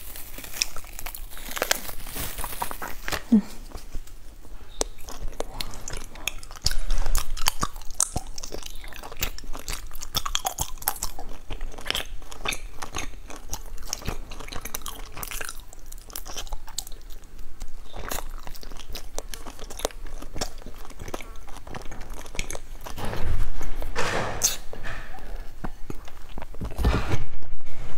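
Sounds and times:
mouth chewing sticky food: 0.0s - 26.9s
thump: 23.0s - 25.2s.

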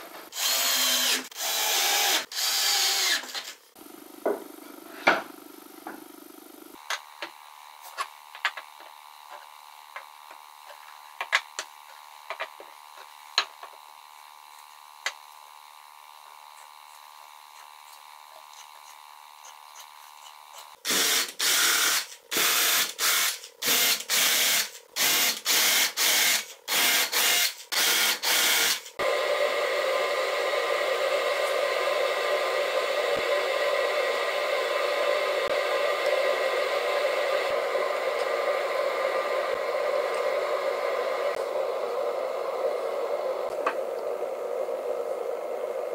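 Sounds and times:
cordless drill bursts: 0.3s - 3.5s, 20.8s - 28.9s.

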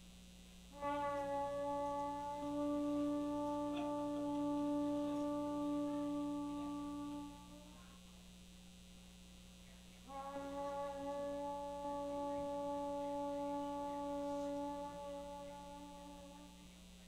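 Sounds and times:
shofar blast: 0.7s - 7.9s, 10.0s - 16.8s.

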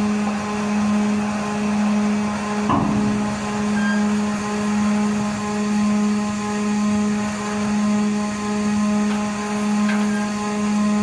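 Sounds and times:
ship engine humming: 0.0s - 11.0s
metal clank: 2.6s - 4.1s, 9.1s - 10.3s.

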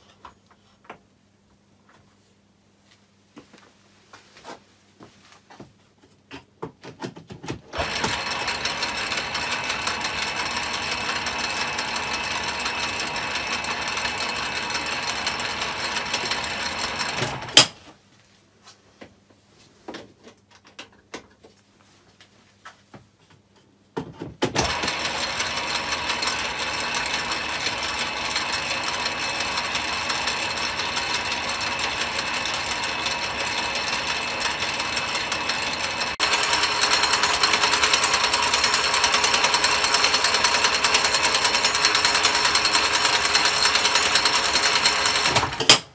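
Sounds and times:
lathe whirring with gears meshing: 7.7s - 17.6s, 24.6s - 45.6s.

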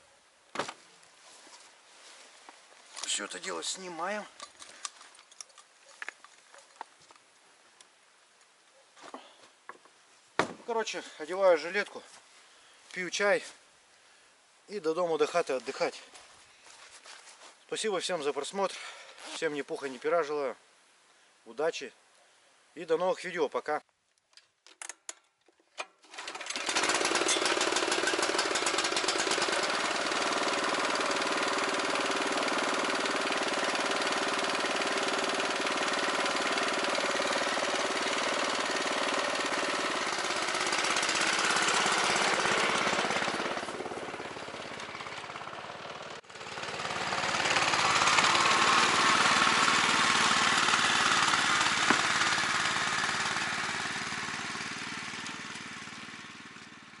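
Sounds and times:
small petrol engine running: 26.0s - 57.0s.

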